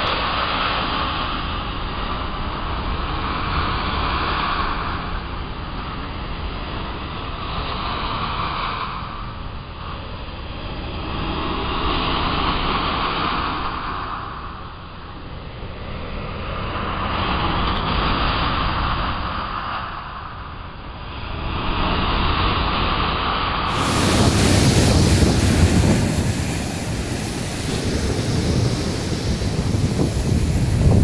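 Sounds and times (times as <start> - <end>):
sea surf breaking on beach: 0.0 - 5.2, 21.2 - 31.0.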